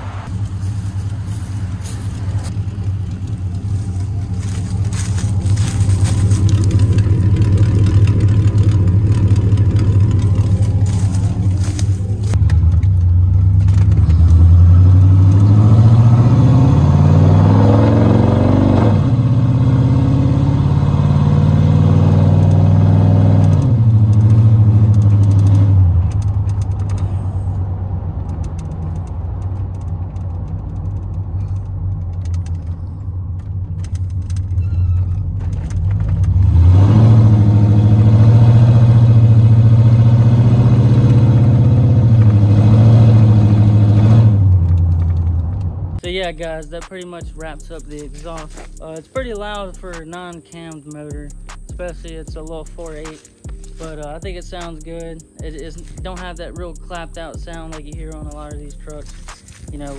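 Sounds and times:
loud truck engine revving: 1.1s - 49.0s.

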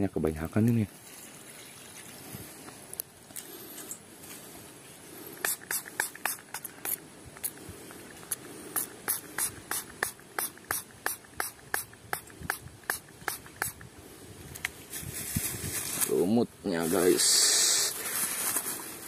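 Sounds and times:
spray bottle squirting: 5.4s - 13.9s.

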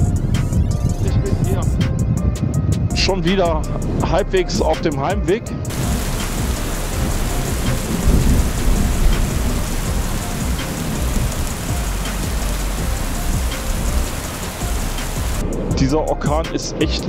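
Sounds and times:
storm wind buffeting microphone: 0.0s - 15.9s
wind-driven rain hissing: 5.7s - 15.6s.

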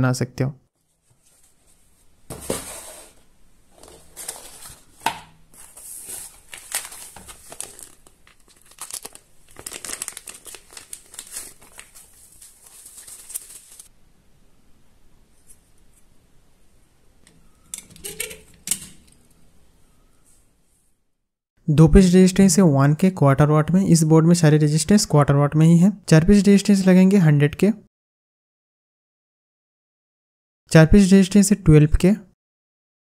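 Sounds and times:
packaging tearing and crinkling: 5.6s - 13.9s.

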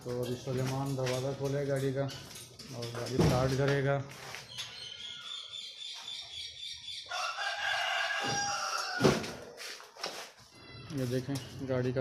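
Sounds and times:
rooster crowing: 7.1s - 9.6s.

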